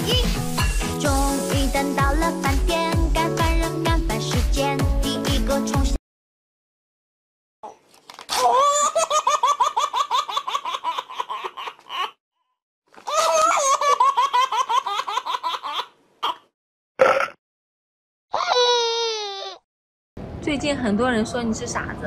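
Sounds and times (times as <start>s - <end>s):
high-pitched cartoon laughter: 13.1s - 15.9s.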